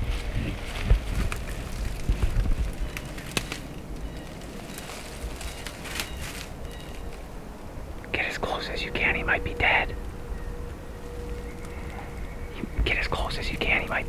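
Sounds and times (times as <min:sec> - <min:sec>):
footsteps crunching through dry leaves: 0:00.0 - 0:07.6, 0:10.9 - 0:13.3
wind rumbling on microphone: 0:00.0 - 0:14.0
twigs snapping: 0:00.1 - 0:07.3, 0:11.0 - 0:12.1.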